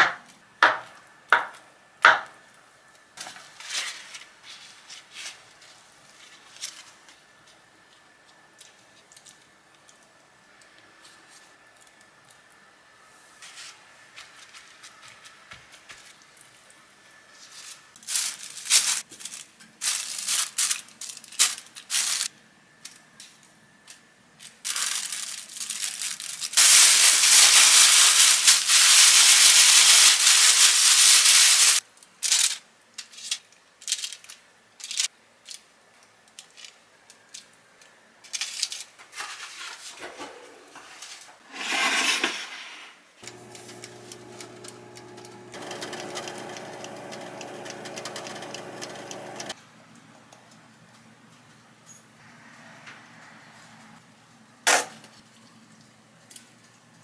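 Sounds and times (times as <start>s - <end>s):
plastic bag rustling: 17.6s - 22.3s, 24.7s - 31.8s
air fryer humming: 43.2s - 49.6s.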